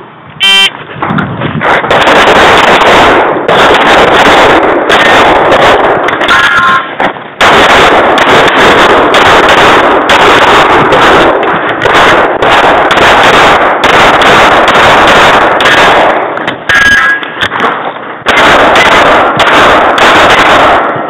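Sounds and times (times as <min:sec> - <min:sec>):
pistol shots: 0:01.6 - 0:21.0.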